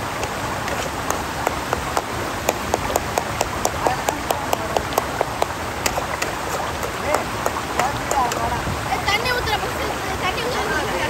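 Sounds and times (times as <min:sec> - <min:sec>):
rapid tapping: 0:00.0 - 0:08.5.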